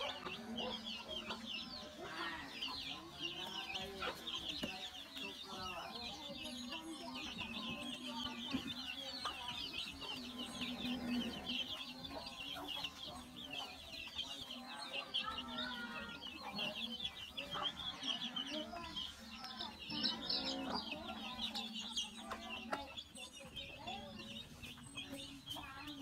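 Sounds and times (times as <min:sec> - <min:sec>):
chicks peeping: 0:00.0 - 0:26.0
hens clucking: 0:00.0 - 0:26.0.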